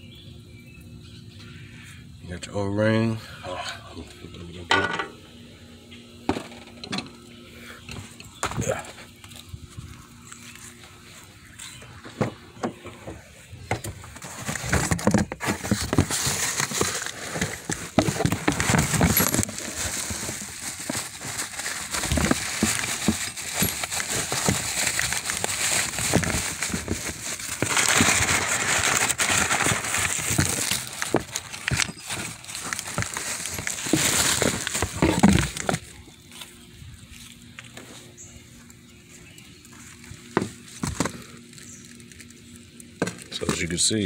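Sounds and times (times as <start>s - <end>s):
bubble wrap crinkling: 14.0s - 37.8s, 39.6s - 43.4s.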